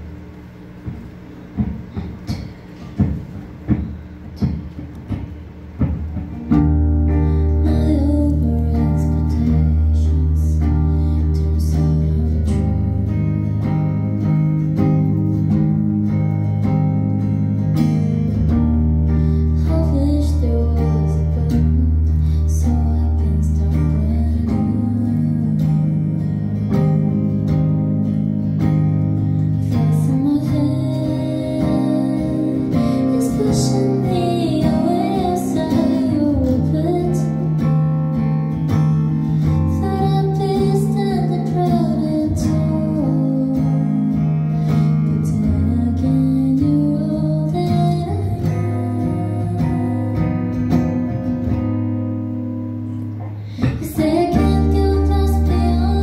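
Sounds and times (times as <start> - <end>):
electric guitar: 0.0 - 56.0
woman singing: 6.5 - 16.6, 18.4 - 28.1, 29.4 - 37.9, 39.4 - 51.1, 53.2 - 56.0.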